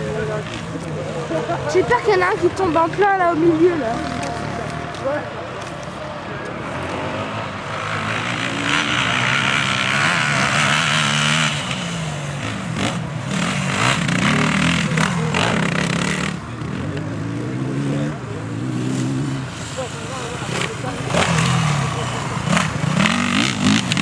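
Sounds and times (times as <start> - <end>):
dirt bike engine revving: 6.6 - 24.0.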